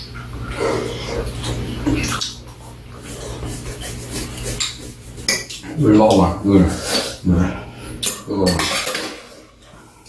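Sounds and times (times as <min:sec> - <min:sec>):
utensils clinking on metal bowls: 0:03.4 - 0:07.0, 0:08.0 - 0:09.6
person talking: 0:05.6 - 0:08.8.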